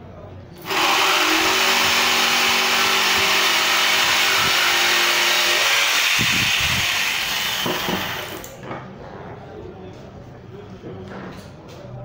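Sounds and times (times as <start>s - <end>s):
jigsaw cutting wood: 0.6s - 8.5s.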